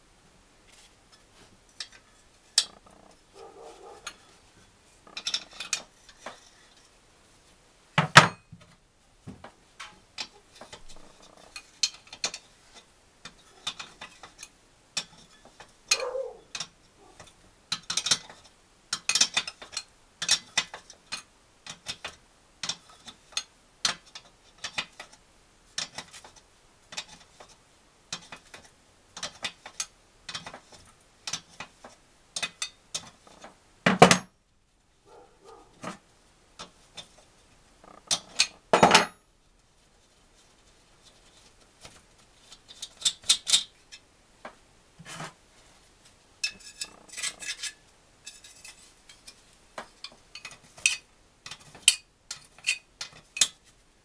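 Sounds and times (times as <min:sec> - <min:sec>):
metal tools clicking and clinking: 0:46.4 - 0:49.4.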